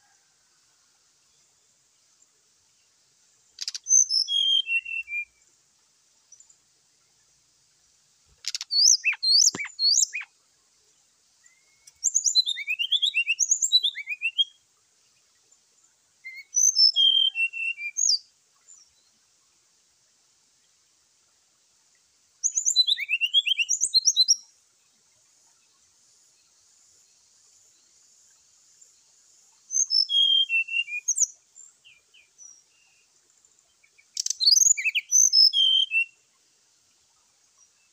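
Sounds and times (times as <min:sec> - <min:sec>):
bird singing whistled notes: 0:03.6 - 0:05.4, 0:08.4 - 0:10.3, 0:11.4 - 0:14.6, 0:16.2 - 0:19.1, 0:22.4 - 0:24.5, 0:29.6 - 0:33.1, 0:33.8 - 0:36.2.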